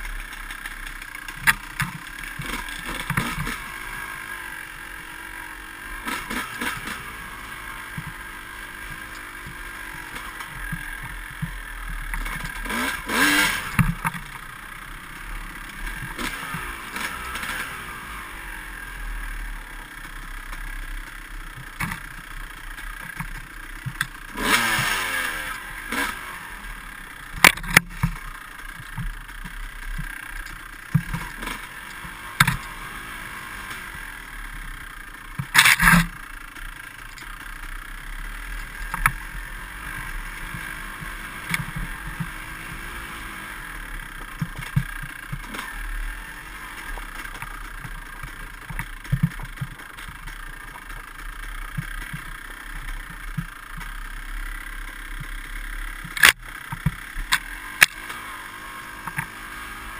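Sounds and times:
dirt bike engine revving: 0:00.0 - 0:59.9
bike knocking and clattering: 0:27.2 - 0:32.8, 0:34.6 - 0:38.0, 0:44.0 - 0:45.8, 0:46.6 - 0:58.1.

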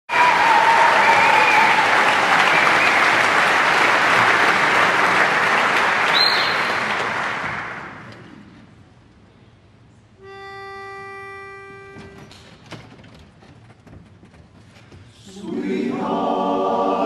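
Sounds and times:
audience applauding: 0:00.1 - 0:08.2.

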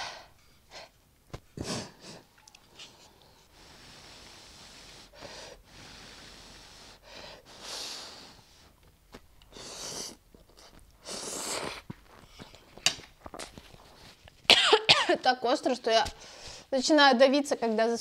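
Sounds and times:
person slurping noodles: 0:09.5 - 0:11.9.

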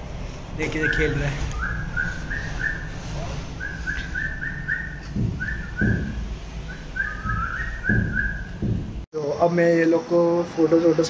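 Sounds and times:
low thumps: 0:01.6 - 0:09.1.

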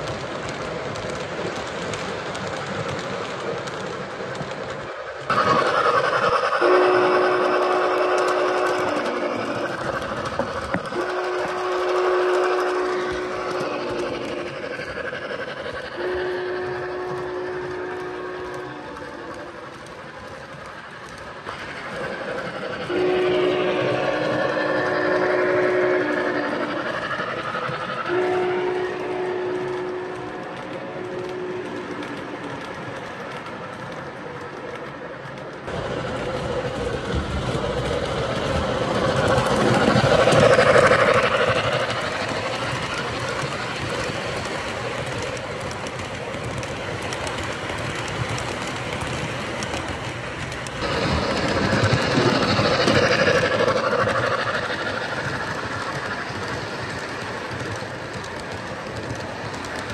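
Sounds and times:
train whistle tone: 0:05.3 - 0:09.8, 0:10.8 - 0:14.5, 0:15.9 - 0:19.6, 0:22.8 - 0:32.1
model train wheel rumble: 0:35.7 - 0:59.9.

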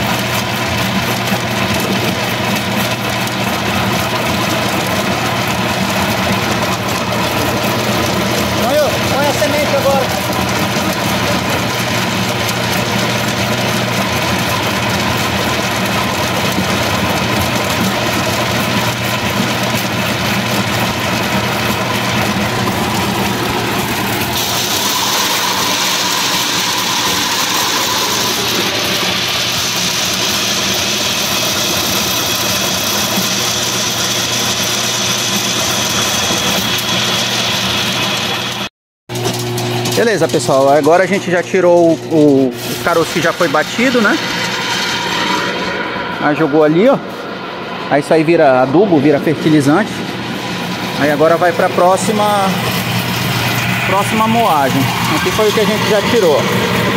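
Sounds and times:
pulping machine churning: 0:00.0 - 0:56.9.

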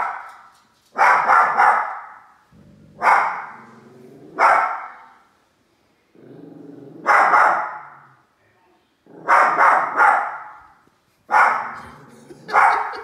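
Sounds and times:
small dog barking: 0:01.0 - 0:02.2, 0:03.0 - 0:03.6, 0:04.4 - 0:05.0, 0:07.0 - 0:08.0, 0:09.2 - 0:10.6, 0:11.3 - 0:11.9, 0:12.5 - 0:13.0
dog growling: 0:02.5 - 0:04.4, 0:06.2 - 0:07.1, 0:11.7 - 0:13.0.

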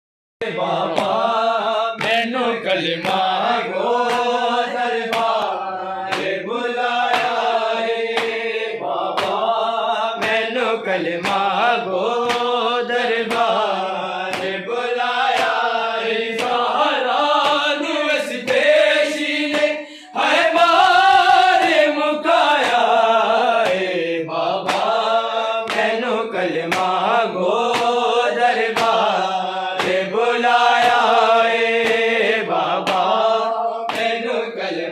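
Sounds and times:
men chanting in unison: 0:00.4 - 0:34.9.

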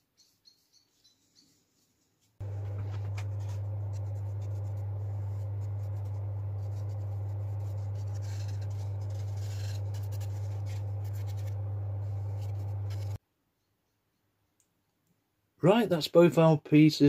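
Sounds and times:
paintbrush scratching on plywood: 0:02.4 - 0:13.2
steady low hum: 0:02.4 - 0:13.2.

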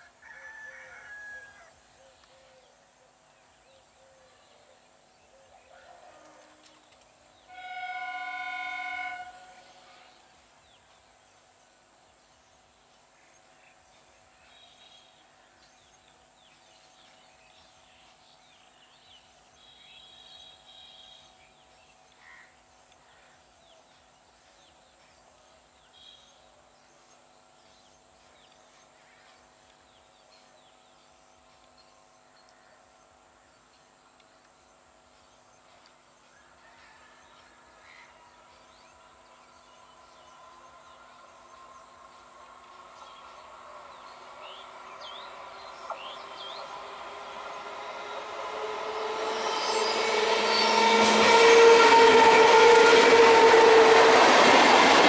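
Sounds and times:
train horn blast: 0:07.4 - 0:10.2, 0:46.1 - 0:55.0.

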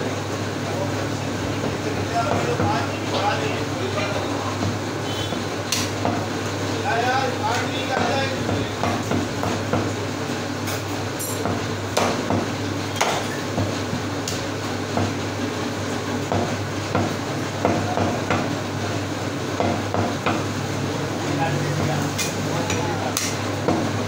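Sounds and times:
cleaver chopping on wooden block: 0:11.4 - 0:13.2.

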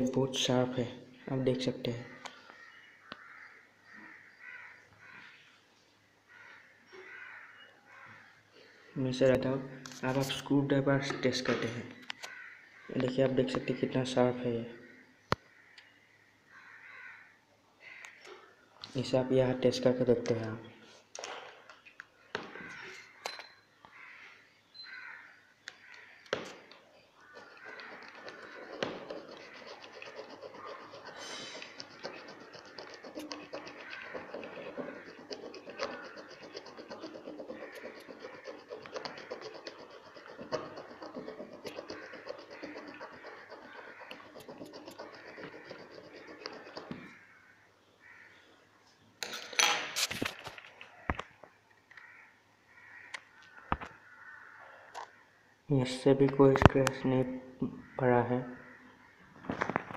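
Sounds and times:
screwdriver scraping on glass: 0:27.3 - 0:47.2.

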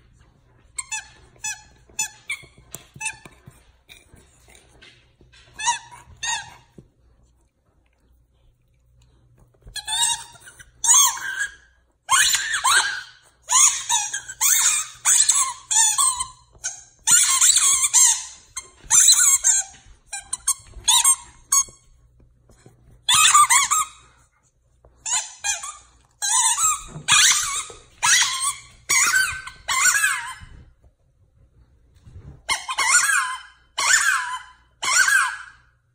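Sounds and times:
squeaky toy squeaking: 0:00.8 - 0:03.5, 0:05.3 - 0:06.8, 0:09.7 - 0:21.9, 0:23.1 - 0:24.1, 0:25.0 - 0:30.6, 0:32.4 - 0:35.7.

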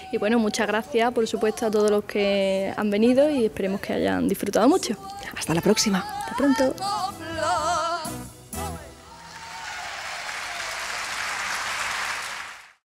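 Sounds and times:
woman's voice: 0:00.0 - 0:07.6
audience applauding: 0:09.2 - 0:12.8.

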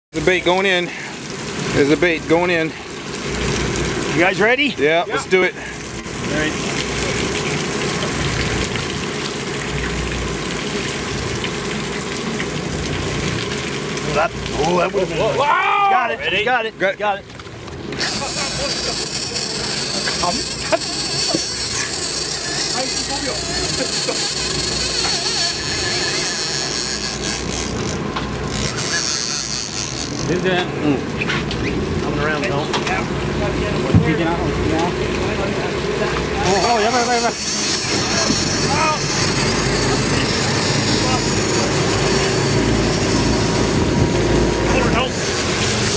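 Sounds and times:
water washing along hull: 0:00.1 - 0:45.9
boat engine idling: 0:17.5 - 0:45.9.

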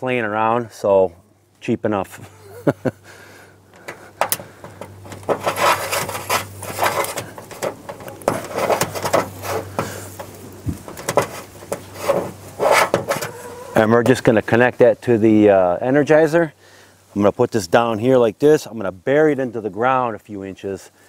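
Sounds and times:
wire insulation scraping by hand: 0:03.7 - 0:14.3.

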